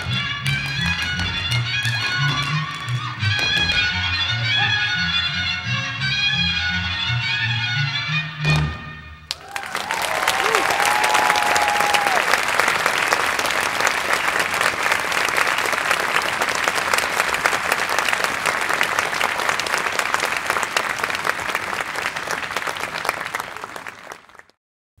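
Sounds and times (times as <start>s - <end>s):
large audience applauding: 0.0s - 3.5s, 9.3s - 24.6s.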